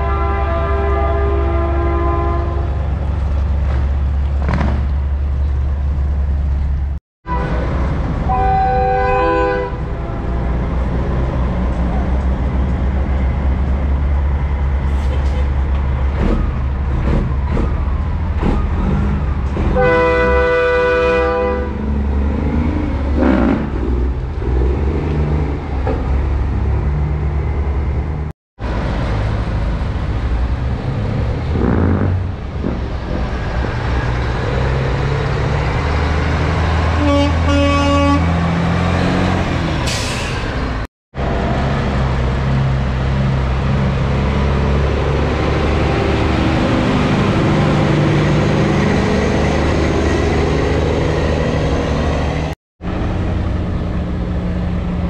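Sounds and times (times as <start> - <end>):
truck horn blast: 0.0 - 2.8, 7.3 - 10.5, 19.7 - 21.8, 36.9 - 38.4
truck diesel engines running: 0.0 - 55.0.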